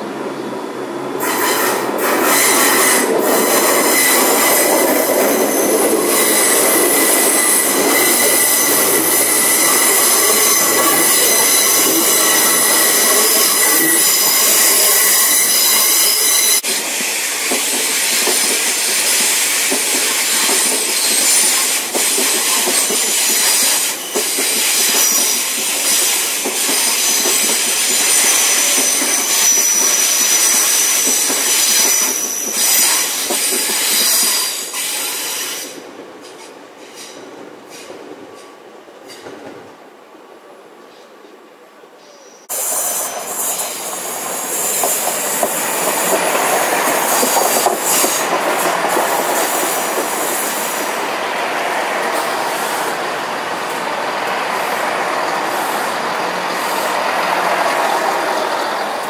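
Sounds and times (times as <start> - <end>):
train running past: 0.0 - 59.0.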